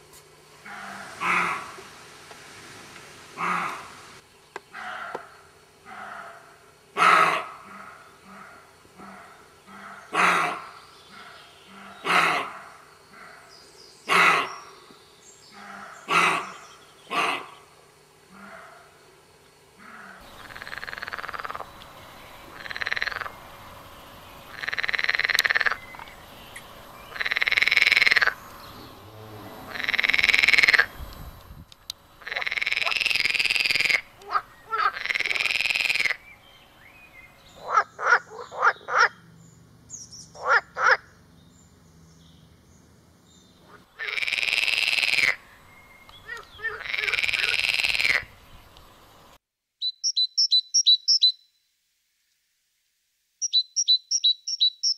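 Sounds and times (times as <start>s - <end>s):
animal calling: 0.6s - 1.9s, 3.4s - 4.0s, 4.7s - 14.8s, 15.5s - 17.7s, 19.8s - 23.7s, 24.4s - 31.0s, 32.2s - 36.3s, 37.5s - 39.2s, 40.2s - 41.1s, 46.1s - 48.4s.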